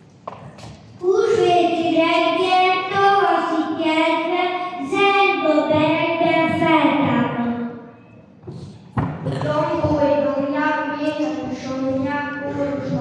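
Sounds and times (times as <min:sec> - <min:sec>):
boy singing into a microphone: 0:11.0 - 0:13.0.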